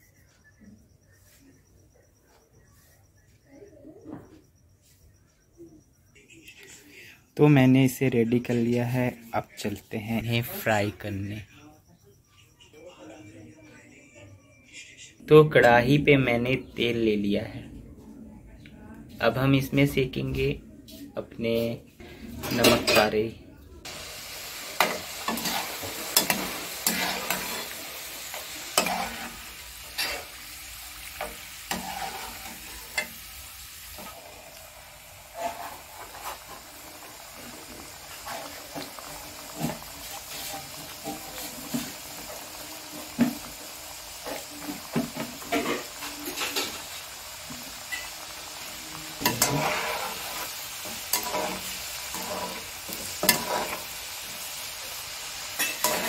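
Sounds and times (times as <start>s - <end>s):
dough deep-frying in hot oil: 22.4s - 56.0s.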